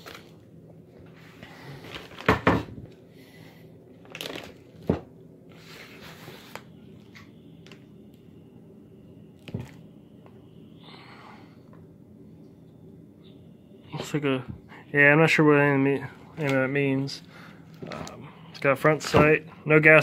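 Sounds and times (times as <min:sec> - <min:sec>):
plastic bag crinkling: 0:04.0 - 0:04.8.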